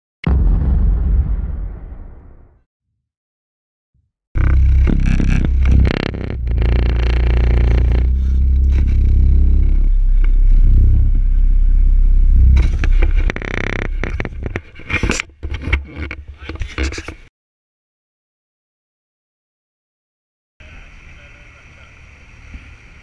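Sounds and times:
low steady rumble: 0:04.4 - 0:14.8
camera rubbing against fabric bag: 0:12.6 - 0:17.3.

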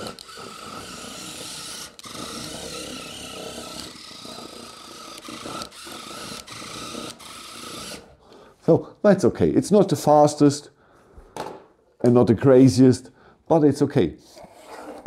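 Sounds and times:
small electric motor whining: 0:00.0 - 0:08.1
toy tracks grinding on wood: 0:00.0 - 0:08.1.

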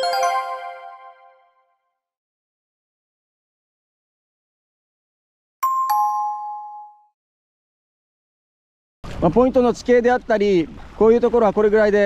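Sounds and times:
bell-like chime: 0:00.0 - 0:01.6, 0:05.6 - 0:07.2.

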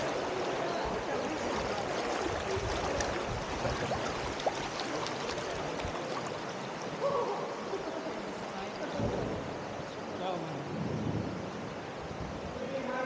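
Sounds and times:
river water flowing: 0:00.0 - 0:13.0.

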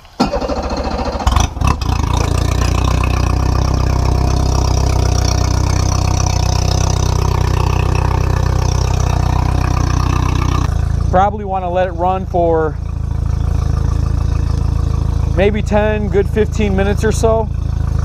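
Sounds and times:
outboard motor starting and idling: 0:00.0 - 0:18.0.

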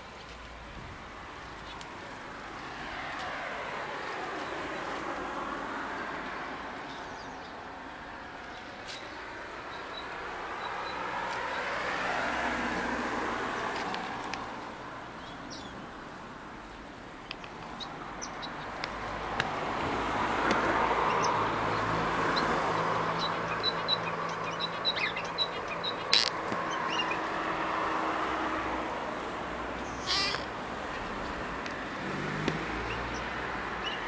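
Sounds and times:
finches chirping: 0:17.3 - 0:18.8, 0:21.0 - 0:27.3, 0:29.8 - 0:30.5, 0:32.8 - 0:34.0.

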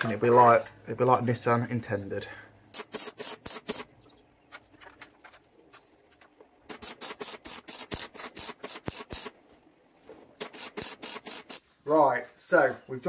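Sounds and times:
arc welding crackle: 0:06.7 - 0:09.4, 0:10.4 - 0:11.6.

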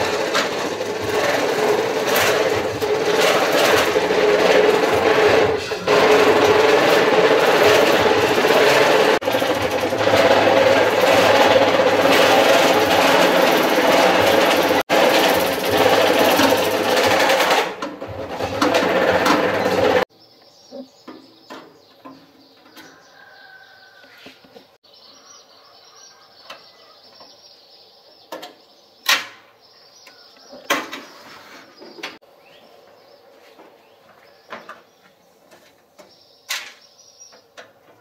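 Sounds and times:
loud power tool running: 0:00.0 - 0:20.1.

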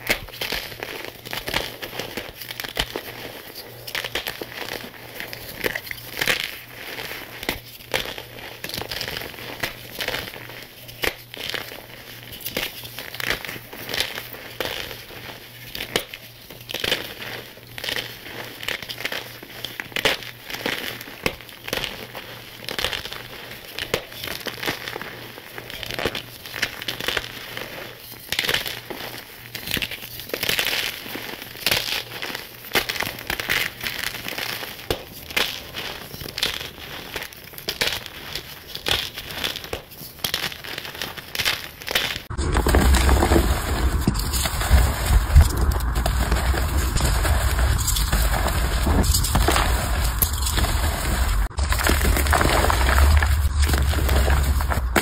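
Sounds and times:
chalk crunching: 0:34.0 - 0:55.0.

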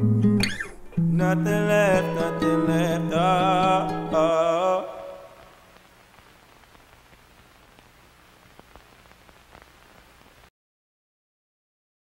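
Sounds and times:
faint hiss: 0:00.0 - 0:10.5
man singing with music: 0:00.9 - 0:05.7.

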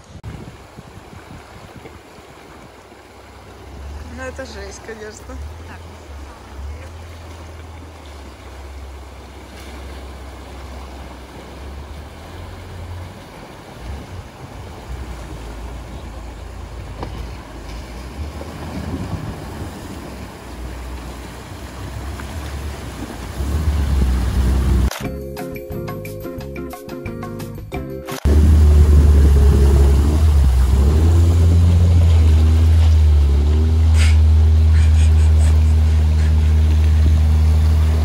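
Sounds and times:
wind buffeting microphone: 0:00.0 - 0:04.4, 0:12.3 - 0:24.9, 0:28.3 - 0:33.1
rushing river water: 0:00.0 - 0:25.0, 0:28.1 - 0:38.0
low vehicle engine rumble: 0:02.2 - 0:24.9, 0:28.2 - 0:38.0.

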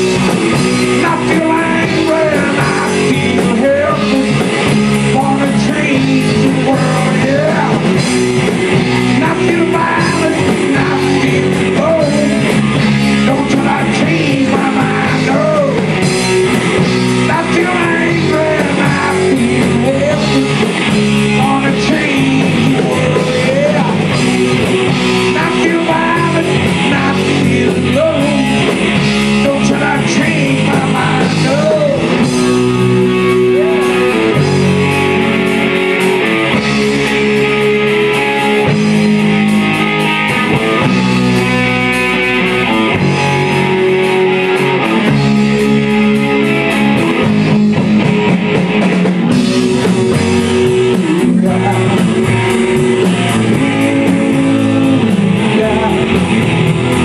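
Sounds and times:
person singing: 0:00.0 - 0:08.1, 0:08.8 - 0:16.1, 0:17.2 - 0:35.4, 0:49.3 - 0:57.0
drum kit: 0:00.0 - 0:57.0
electric guitars: 0:00.0 - 0:57.0.

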